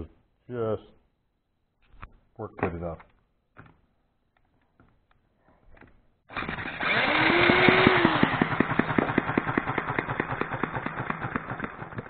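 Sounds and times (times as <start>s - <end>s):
electric drill whine: 6.3s - 10.1s
small gas engine popping: 6.3s - 12.0s.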